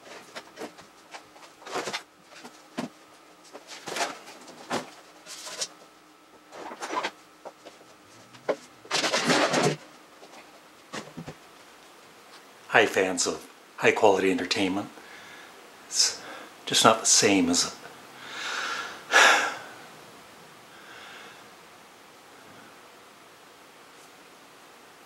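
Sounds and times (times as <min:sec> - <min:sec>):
scraping rustle: 0:00.0 - 0:12.5.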